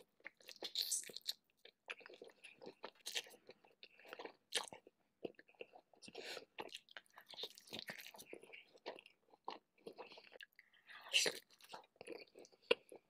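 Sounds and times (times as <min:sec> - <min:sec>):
wet bites and chewing: 0:00.0 - 0:13.0.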